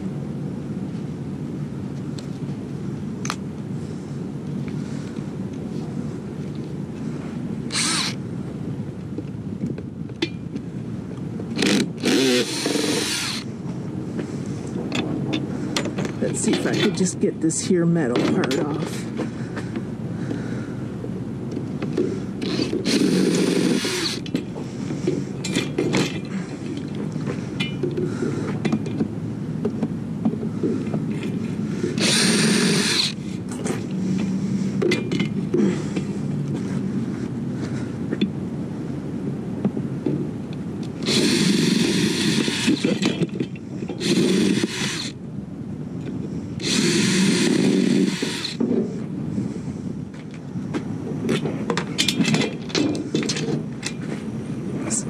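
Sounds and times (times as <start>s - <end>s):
power tool bursts: 7.7s - 8.2s, 11.6s - 13.5s, 22.4s - 24.2s, 32.0s - 33.2s, 41.0s - 43.1s, 46.6s - 48.6s
clattering metal and plastic parts: 42.3s - 44.7s, 51.3s - 54.2s.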